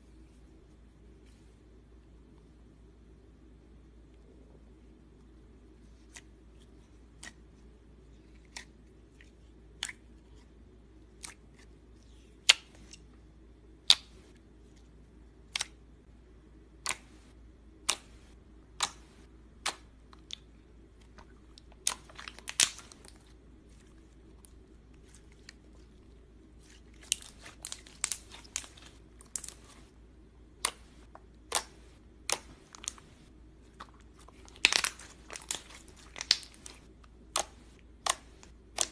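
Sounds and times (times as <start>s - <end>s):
slime wet pops and clicks: 18.8s - 20.4s.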